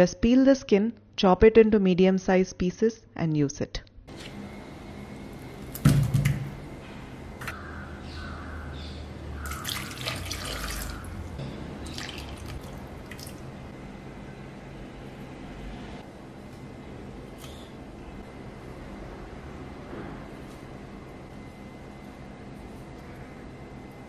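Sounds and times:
water splashing into pot: 9.4s - 11.1s, 11.8s - 13.4s.

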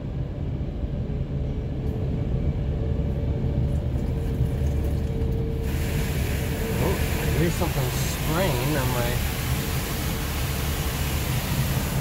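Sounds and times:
low rumble and hum: 0.0s - 12.0s
water spray hissing on van: 5.6s - 12.0s.

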